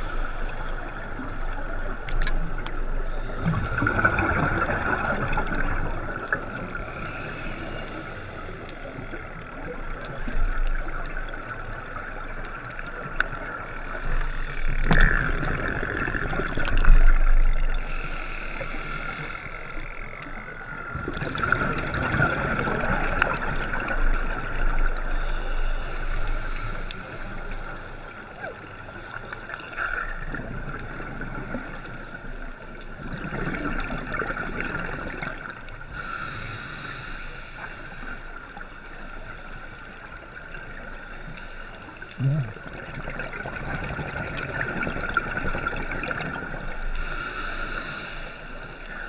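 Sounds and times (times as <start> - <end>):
underwater regulator breathing: 0.0 - 1.3, 6.7 - 9.3, 13.7 - 15.6, 17.7 - 20.0, 24.9 - 28.4, 35.9 - 40.3, 45.3 - 49.0
exhaled bubbles underwater: 0.0 - 18.1, 19.5 - 36.2, 41.9 - 47.2.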